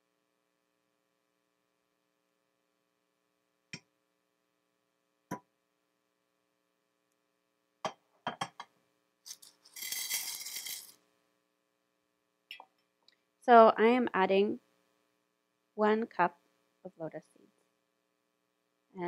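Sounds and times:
faint steady hum: 0:00.0 - 0:19.0
dry seeds rattling into steel pan: 0:09.3 - 0:11.0.

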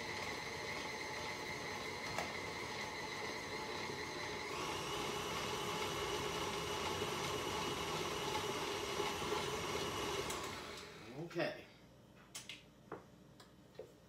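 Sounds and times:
electric stand mixer whining: 0:00.0 - 0:11.1.

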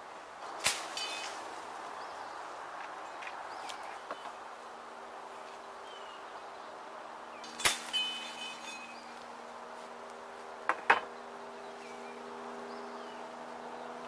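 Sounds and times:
machete chopping branches: 0:00.5 - 0:01.6, 0:07.4 - 0:09.2.

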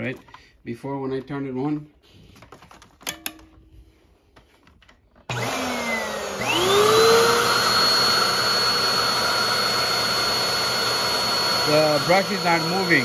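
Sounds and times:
vacuum cleaner motor whining: 0:05.2 - 0:13.0.

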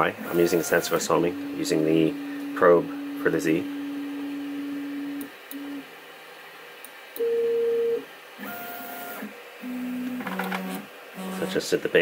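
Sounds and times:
low steady motor tone: 0:00.5 - 0:05.8.

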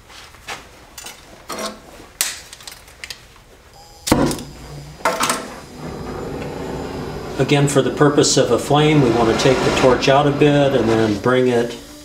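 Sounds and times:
welding torch flame whoosh: 0:05.6 - 0:11.8.

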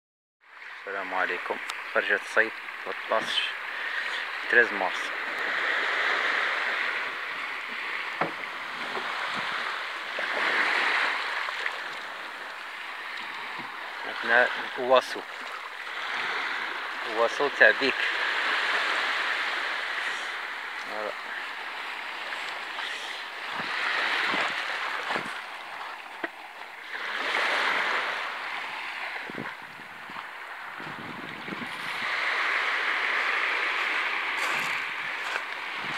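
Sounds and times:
small waves lapping on shore: 0:00.4 - 0:35.9
footsteps on pebbles: 0:33.8 - 0:35.9.

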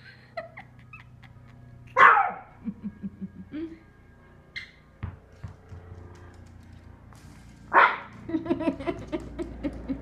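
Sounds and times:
small dog barking: 0:02.0 - 0:02.4, 0:07.7 - 0:08.1.

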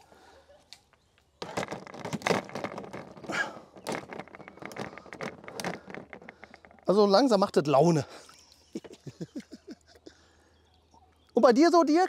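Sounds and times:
rapid clicks and knocks: 0:01.4 - 0:07.4.

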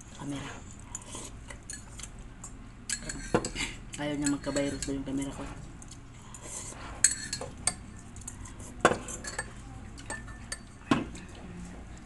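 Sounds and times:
cutlery clinking against ceramic bowl: 0:02.9 - 0:05.0, 0:07.0 - 0:11.0.

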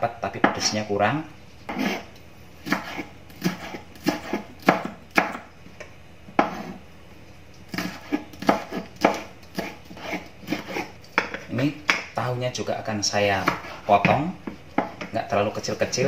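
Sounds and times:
knife chopping on wooden board: 0:01.7 - 0:02.0, 0:02.6 - 0:05.5, 0:06.3 - 0:06.8, 0:07.7 - 0:12.2, 0:13.3 - 0:15.2.

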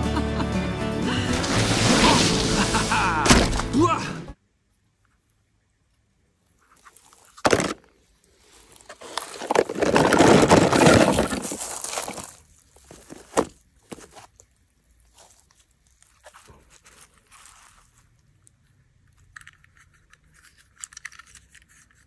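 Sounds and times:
rustling grass and leaves: 0:01.2 - 0:03.8, 0:08.3 - 0:18.2.

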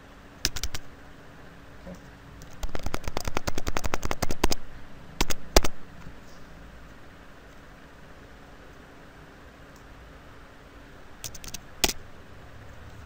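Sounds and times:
keyboard keys clicking: 0:00.5 - 0:00.8, 0:02.4 - 0:04.6, 0:11.2 - 0:12.0.

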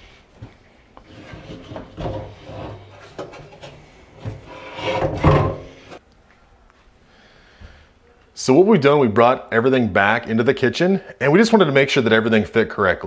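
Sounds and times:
metal sink knocking and scraping wood: 0:01.0 - 0:06.0.

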